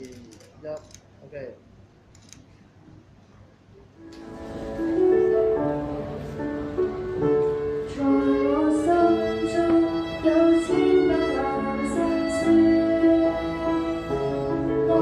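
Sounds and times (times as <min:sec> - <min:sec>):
quiet instrumental accompaniment: 0:04.0 - 0:15.0
girl singing into microphone: 0:07.8 - 0:15.0.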